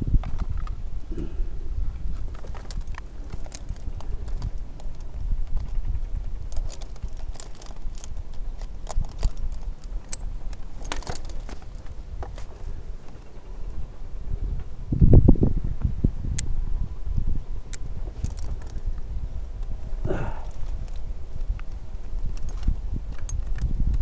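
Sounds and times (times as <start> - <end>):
steady low rumble: 0.0 - 24.0
wind buffeting microphone: 0.0 - 24.0
rope rustling against branches: 0.1 - 13.4, 17.8 - 23.8
metallic clinks of climbing hardware: 6.4 - 12.7.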